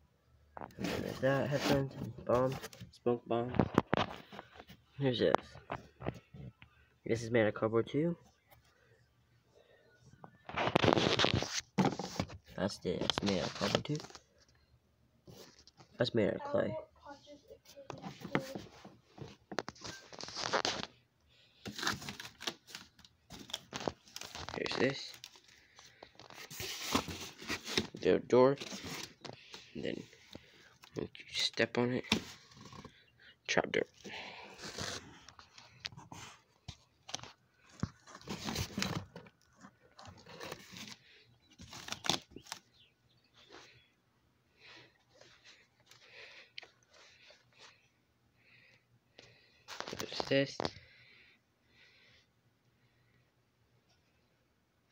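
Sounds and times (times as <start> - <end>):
rustling and scraping: 0.6 - 6.6, 10.2 - 14.6, 15.2 - 16.0, 17.2 - 21.0, 21.6 - 28.0, 28.6 - 30.6, 34.1 - 42.7
cardboard scraping and rustling: 10.5 - 12.4, 26.2 - 28.0, 37.8 - 42.6.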